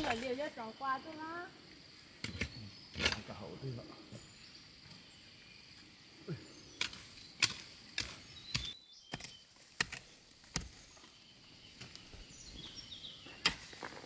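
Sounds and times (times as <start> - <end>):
hoe striking stony ground: 6.8 - 11.1, 11.8 - 14.0.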